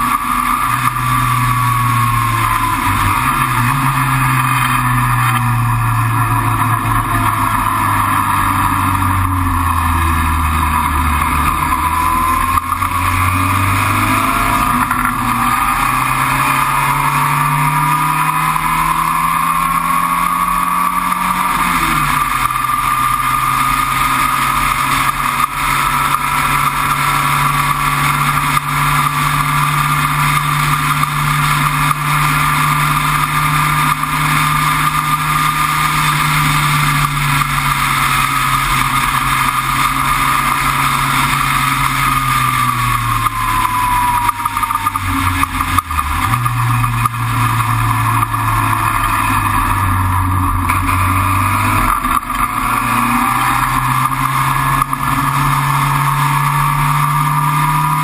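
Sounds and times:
racing car engine running hard: 0.0s - 58.0s
wind and road noise: 0.0s - 58.0s.

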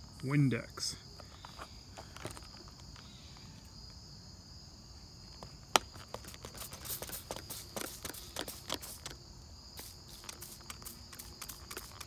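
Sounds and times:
high insect trill: 0.0s - 12.0s
spray bottle spritz: 6.0s - 9.2s, 9.8s - 12.0s.

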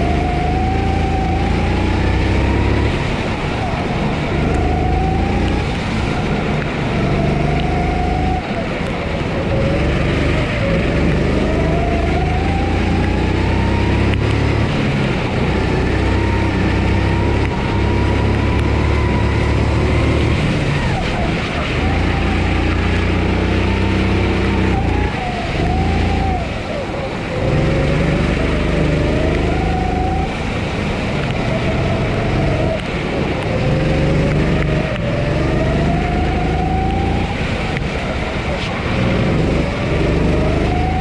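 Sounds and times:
kart engine revving: 0.0s - 41.0s.

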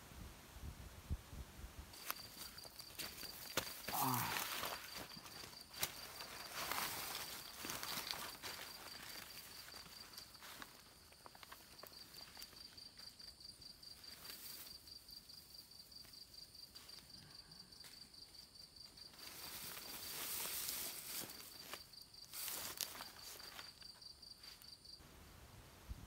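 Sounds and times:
insect trilling: 2.0s - 10.6s.

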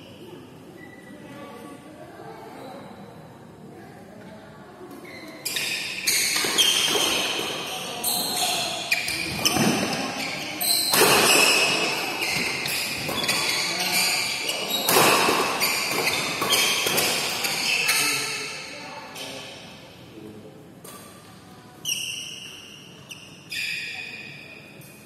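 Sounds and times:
shoes squeaking on court: 5.0s - 19.4s, 21.8s - 25.0s
rackets hitting shuttlecock: 6.0s - 17.8s.

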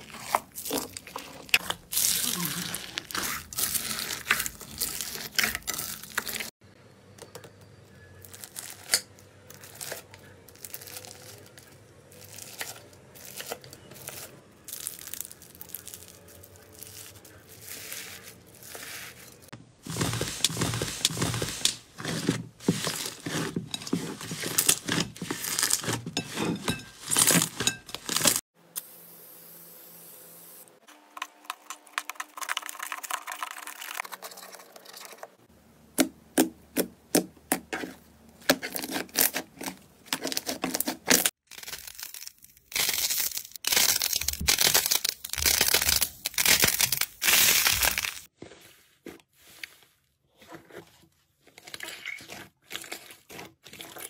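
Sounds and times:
knife cutting crunchy slime: 19.9s - 28.4s, 36.7s - 41.8s, 51.4s - 54.0s
slime crackling and popping: 38.5s - 48.3s.

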